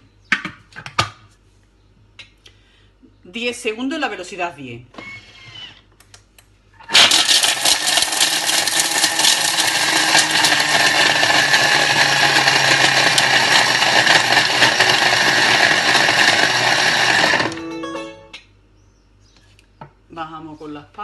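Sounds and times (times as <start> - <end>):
food processor whirring: 6.8 - 17.7.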